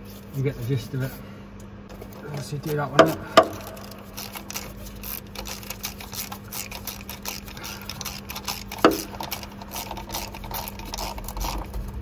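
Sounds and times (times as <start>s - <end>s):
ratchet wrench clicking: 2.6s - 11.7s.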